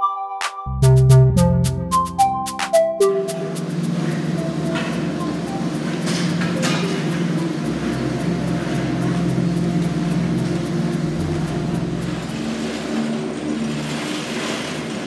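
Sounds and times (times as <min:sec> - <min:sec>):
gondola lift machinery hum: 0:03.1 - 0:15.0
faint regular ticking: 0:03.4 - 0:12.4.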